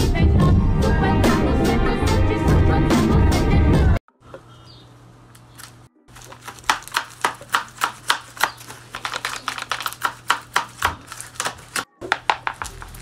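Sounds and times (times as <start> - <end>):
paper jaws snapping: 5.4 - 11.9.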